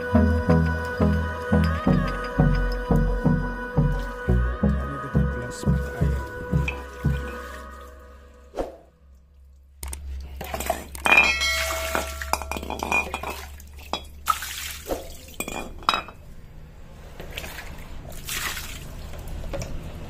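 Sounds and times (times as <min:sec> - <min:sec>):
metal clinks and knocks on tiles: 0:10.5 - 0:14.0, 0:15.4 - 0:16.2.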